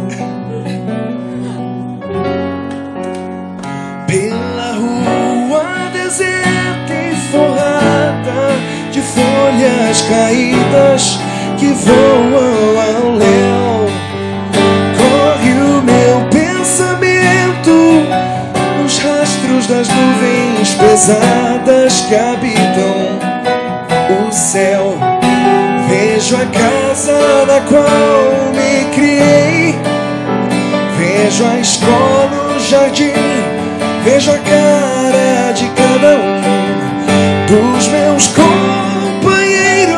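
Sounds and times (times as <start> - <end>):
strummed acoustic guitar: 0.0 - 39.9
man singing into a microphone: 3.7 - 39.9.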